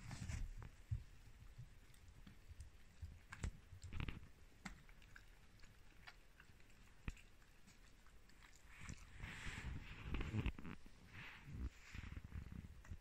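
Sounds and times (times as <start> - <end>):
dog chewing bone: 0.8 - 10.8.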